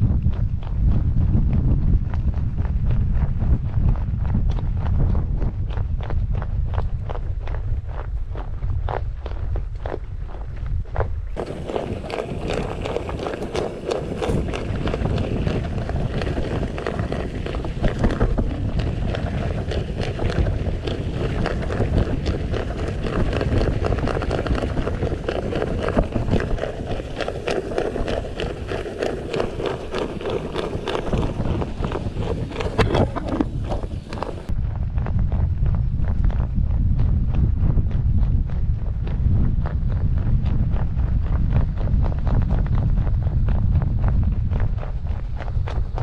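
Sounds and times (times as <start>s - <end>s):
wind buffeting microphone: 0.0s - 46.0s
bike rattling: 11.2s - 34.6s
tyres crunching over dirt: 11.2s - 34.6s.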